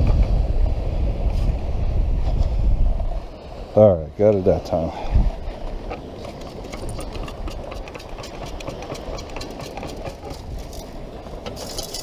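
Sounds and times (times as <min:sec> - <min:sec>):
sand rattling through metal scoop: 0:06.2 - 0:10.9.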